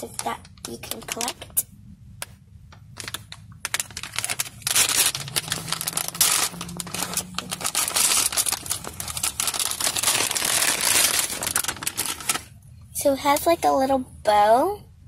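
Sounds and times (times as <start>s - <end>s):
plastic bag crinkling: 0.0s - 1.6s, 2.7s - 12.6s.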